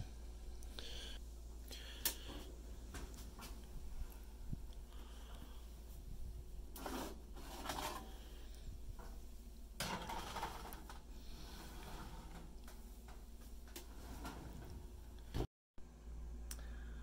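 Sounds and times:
stone scraping on metal oven rack: 6.8s - 8.2s.

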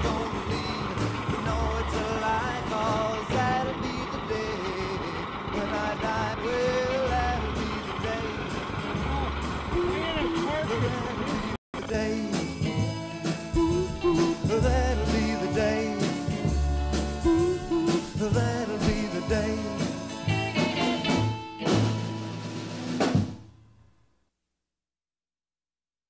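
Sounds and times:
rock song with drum kit: 0.0s - 3.7s, 7.1s - 23.5s.

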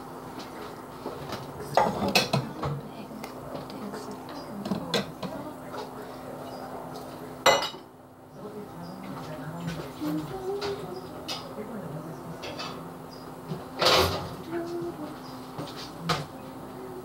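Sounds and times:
dishes and cutlery clattering: 7.5s - 7.9s, 13.8s - 14.3s.

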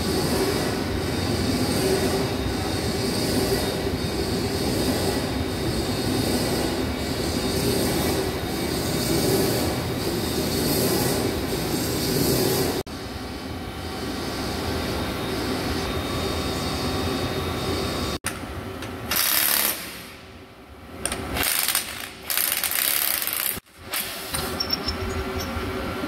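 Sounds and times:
machine shop noise: 0.0s - 26.0s
electric wrench bursts: 19.1s - 20.2s.

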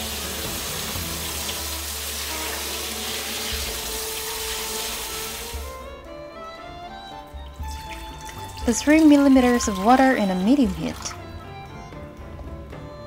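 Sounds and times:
hands rinsing meat splashing: 0.0s - 5.8s, 7.2s - 11.5s
tap water running into sink: 0.0s - 5.8s, 6.9s - 11.5s.

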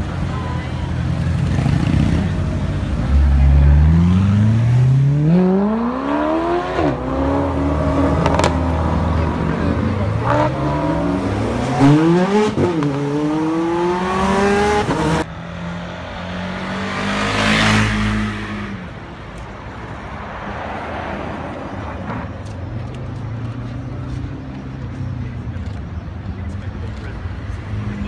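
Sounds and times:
car engine revving hard: 10.2s - 15.3s.

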